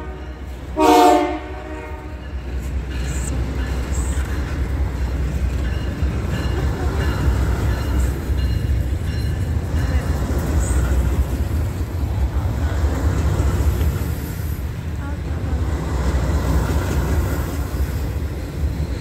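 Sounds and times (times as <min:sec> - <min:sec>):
train horn blast: 0:00.0 - 0:02.3
freight train wheels rumbling: 0:00.0 - 0:19.0.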